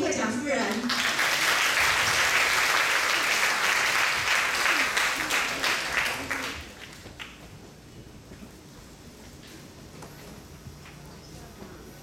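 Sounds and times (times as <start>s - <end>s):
audience applauding: 0.7s - 7.4s.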